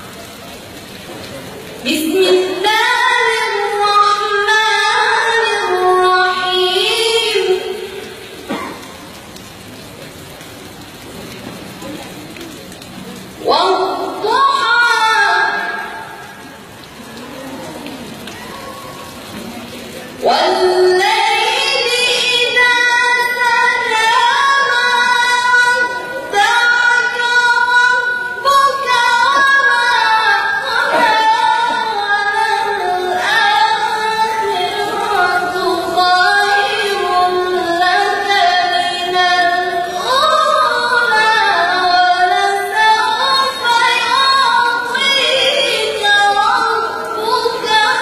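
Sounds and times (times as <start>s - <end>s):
woman chanting recitation: 1.8s - 8.3s, 13.4s - 16.5s, 19.9s - 48.0s.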